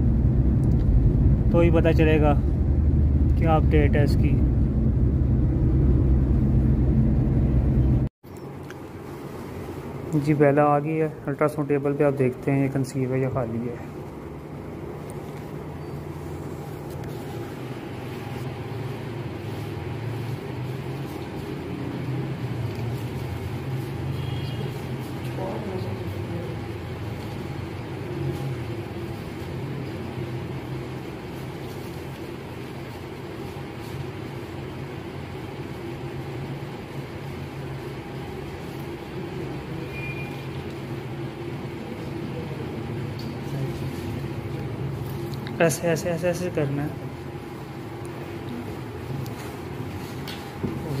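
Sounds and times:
low machine hum: 0:00.0 - 0:08.1
broad background noise: 0:00.0 - 0:51.0
low mechanical hum: 0:00.0 - 0:51.0.

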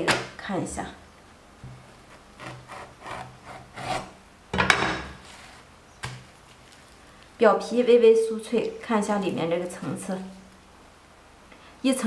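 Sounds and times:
knife sawing through flatbread: 0:02.1 - 0:04.2.

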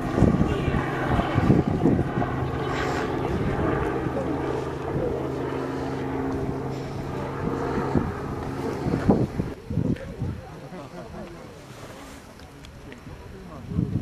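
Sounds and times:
engine humming: 0:00.0 - 0:09.6
wind buffeting microphone: 0:00.0 - 0:10.6, 0:13.0 - 0:14.0.

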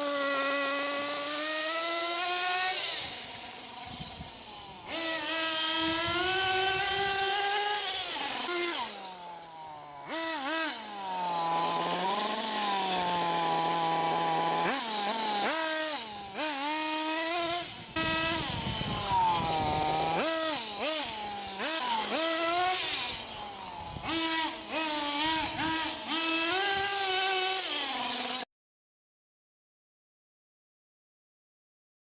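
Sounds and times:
small nitro engine revving: 0:00.0 - 0:28.5.

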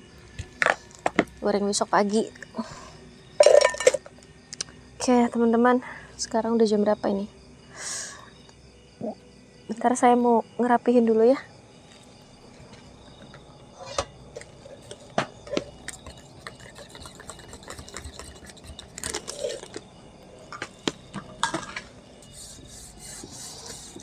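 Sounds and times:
crickets chirping: 0:00.0 - 0:24.0
dishes clicking and clattering: 0:03.4 - 0:04.0, 0:14.9 - 0:19.8.

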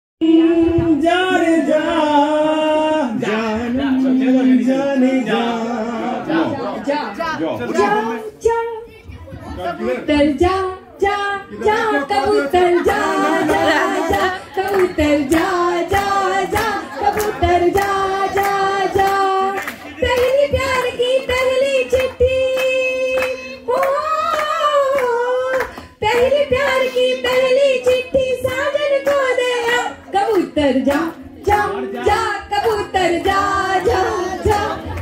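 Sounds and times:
group singing: 0:00.2 - 0:07.0, 0:09.6 - 0:35.0
hands clapping a beat: 0:12.9 - 0:35.0.

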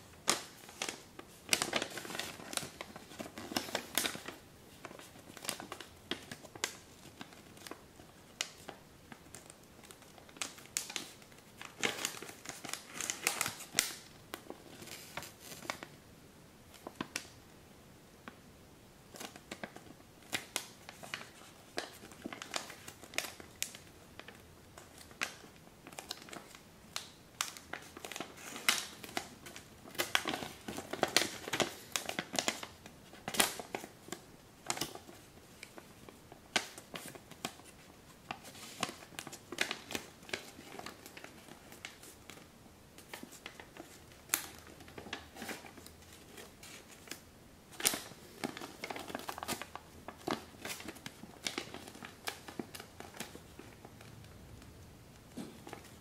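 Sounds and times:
paper rustling and crackling: 0:00.0 - 0:16.0, 0:19.1 - 0:56.0.

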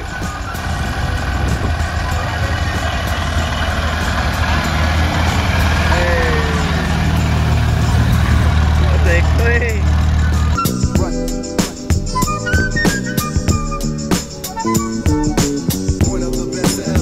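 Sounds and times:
car engine low drone: 0:00.0 - 0:12.7.

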